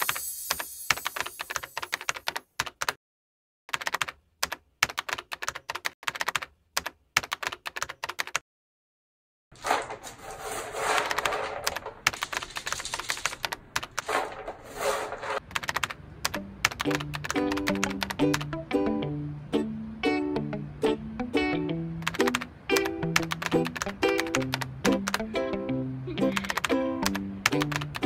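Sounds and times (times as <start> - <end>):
keyboard typing clicks: 0.0 - 3.0, 3.7 - 8.4, 11.1 - 14.1, 15.5 - 18.5, 22.0 - 25.2, 26.3 - 28.0.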